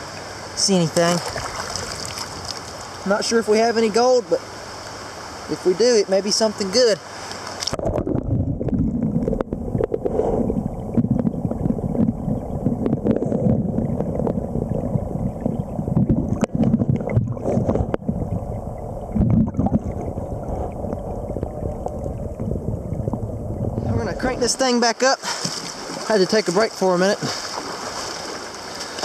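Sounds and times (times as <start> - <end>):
underwater clicks and knocks: 7.4 - 18.4, 19.1 - 20.1
muffled underwater river rumble: 7.6 - 24.8.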